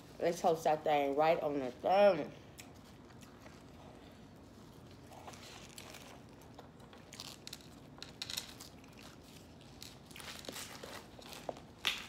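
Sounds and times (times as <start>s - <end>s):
paper wrapper crinkling and tearing: 4.8s - 11.8s.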